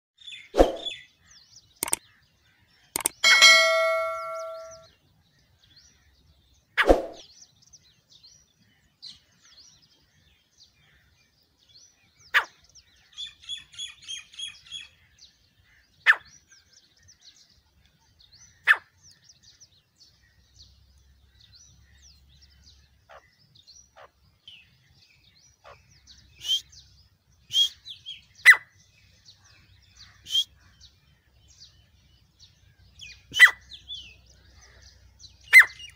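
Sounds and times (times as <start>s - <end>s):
bird calls: 0.2s - 35.9s
bell-like ding: 3.2s - 4.9s.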